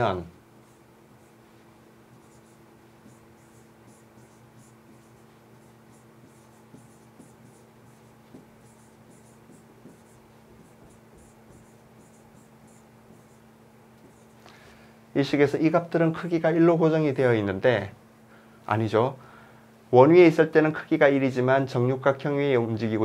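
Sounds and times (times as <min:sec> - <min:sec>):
steady low hum: 0:00.0 - 0:21.8
stylus scratching on pen tablet: 0:00.6 - 0:14.4.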